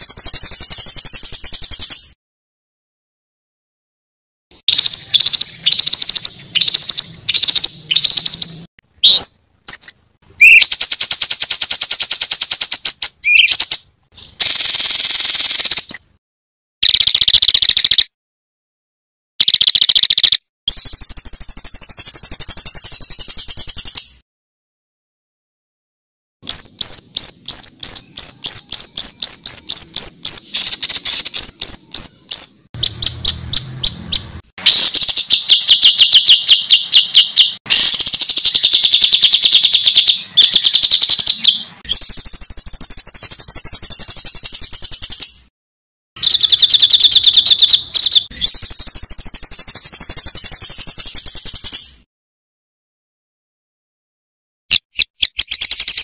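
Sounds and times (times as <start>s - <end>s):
songbird rapid sharp notes: 4.6s - 16.1s, 26.4s - 45.2s.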